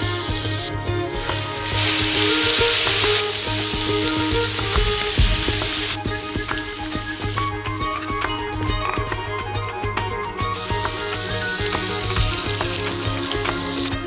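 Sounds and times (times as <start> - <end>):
chicken sizzling in butter: 1.2 - 8.2, 10.6 - 14.0.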